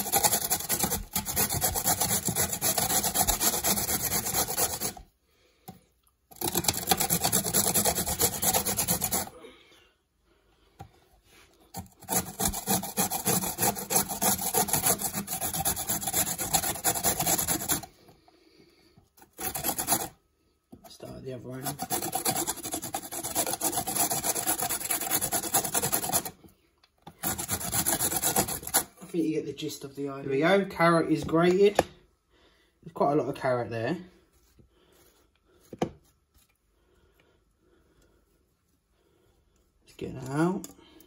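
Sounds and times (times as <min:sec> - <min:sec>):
carrot grating on metal grater: 0:00.0 - 0:05.0, 0:06.3 - 0:09.3, 0:11.7 - 0:17.9, 0:19.2 - 0:20.2, 0:20.9 - 0:26.4, 0:27.1 - 0:29.0.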